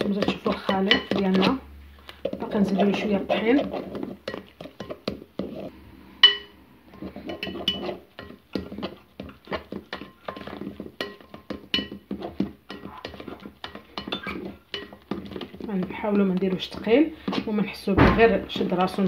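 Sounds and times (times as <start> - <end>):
whisk clinking against bowl: 0.0 - 1.5, 7.3 - 15.6.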